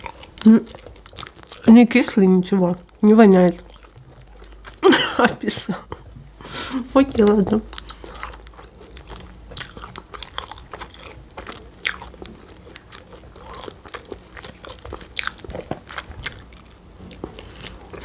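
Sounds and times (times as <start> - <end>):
person chewing: 0.0 - 18.0.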